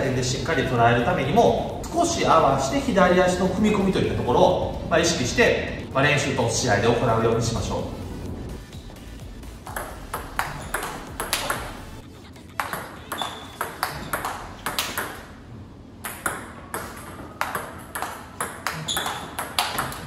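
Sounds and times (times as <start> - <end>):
table tennis ball tapping: 9.6 - 15.4, 16.0 - 20.0.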